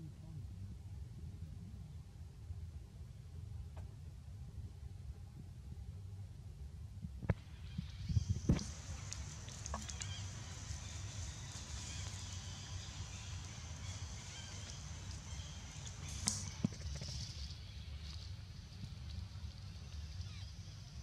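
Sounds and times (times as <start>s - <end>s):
steady high hiss: 7.3s - 21.0s
dry leaves crackling: 7.6s - 21.0s.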